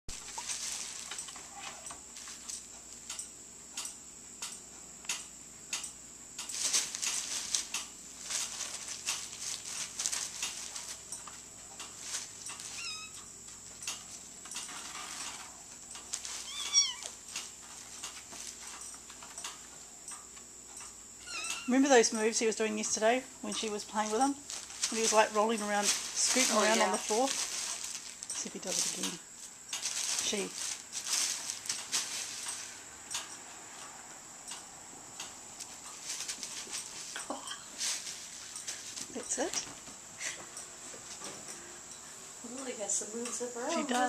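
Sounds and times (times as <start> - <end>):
plastic bag crinkling: 0.1 - 1.6, 6.5 - 13.1, 23.8 - 32.8
cat mewing: 12.7 - 13.2, 16.4 - 17.2.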